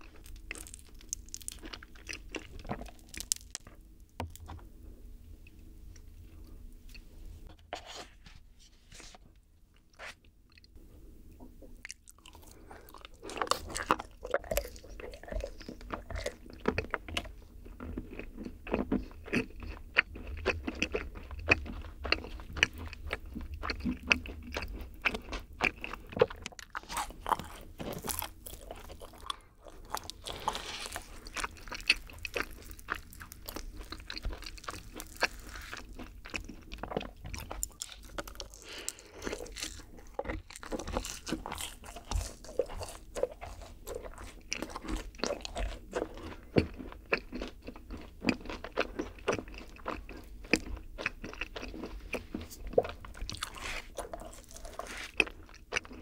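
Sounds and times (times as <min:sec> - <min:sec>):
chewing and biting cookies: 0:00.0 - 0:04.7, 0:11.6 - 0:56.0.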